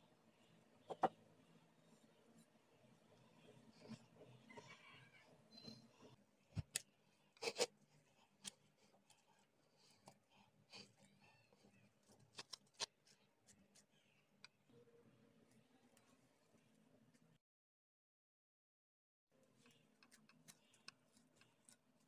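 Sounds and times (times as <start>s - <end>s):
gloved hand kneading dough: 19.5s - 22.0s.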